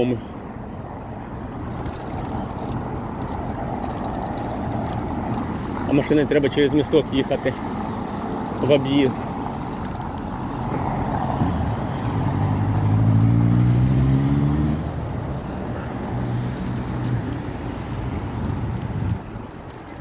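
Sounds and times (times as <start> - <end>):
steady traffic hum: 0.0 - 20.0
vehicle engine passing: 10.2 - 15.2.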